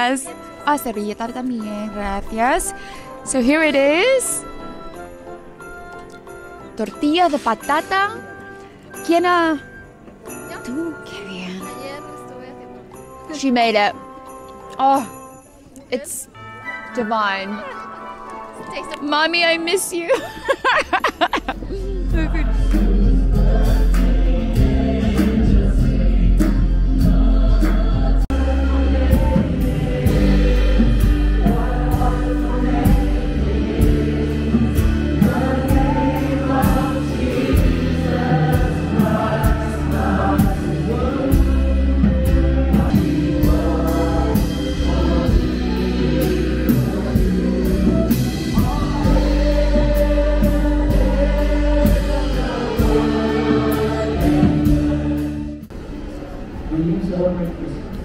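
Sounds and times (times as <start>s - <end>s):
keyboard: 0.0s - 58.0s
steady drum beat: 20.6s - 55.7s
people singing: 21.3s - 55.6s
deep held bass notes: 21.4s - 55.7s.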